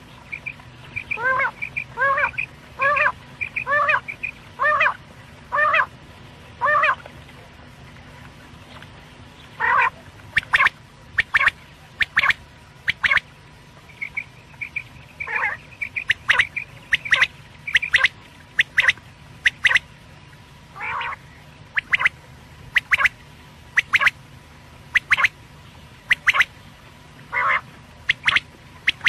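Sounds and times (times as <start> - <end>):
faint steady hum: 0.0 - 29.0
quail calls: 0.3 - 5.9, 6.6 - 7.0, 9.6 - 13.2, 14.0 - 19.8, 20.8 - 21.2, 21.8 - 22.1, 22.8 - 23.1, 23.8 - 24.2, 24.9 - 25.3, 26.1 - 26.5, 27.3 - 29.0.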